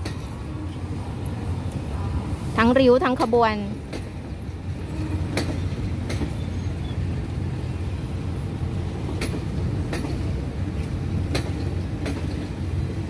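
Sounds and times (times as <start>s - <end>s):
train carriages rumbling: 0.0s - 13.0s
wheels clacking over rail joints: 3.0s - 6.6s, 8.7s - 13.0s.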